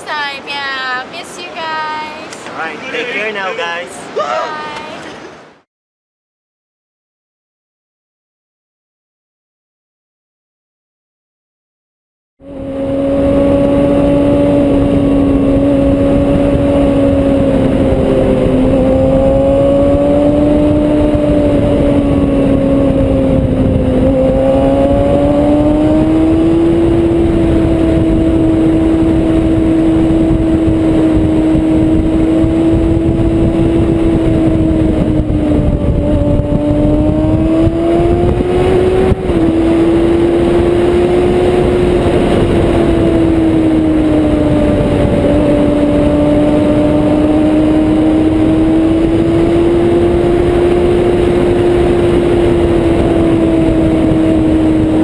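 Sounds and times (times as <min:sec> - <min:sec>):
motorcycle engine high revs: 0:12.4 - 0:55.0
wind noise: 0:12.4 - 0:55.0.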